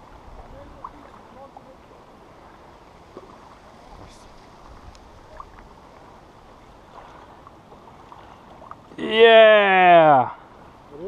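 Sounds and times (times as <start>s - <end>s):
lake water: 0.0s - 11.0s
low wind: 0.0s - 11.0s.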